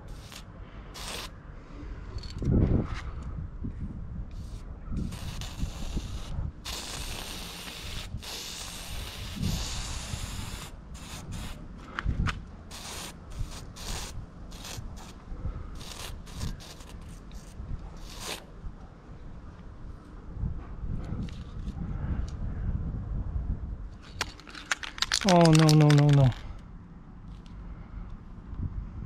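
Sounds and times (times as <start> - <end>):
aerosol spray can hissing: 0.1 - 0.4, 1.0 - 1.3, 4.4 - 11.6, 12.7 - 15.2, 15.8 - 18.4.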